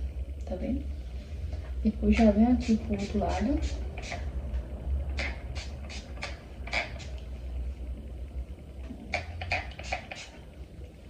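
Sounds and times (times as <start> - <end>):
spray bottle hissing: 2.2 - 4.3, 5.1 - 7.2, 9.1 - 10.4.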